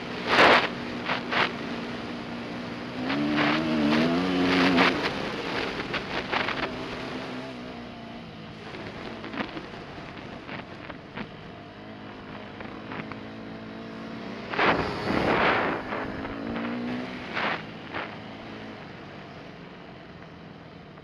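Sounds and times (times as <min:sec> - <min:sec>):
dirt bike engine running: 0:00.0 - 0:21.0
second dirt bike passing close: 0:03.0 - 0:07.6, 0:13.8 - 0:18.8
wind on microphone: 0:14.3 - 0:18.8.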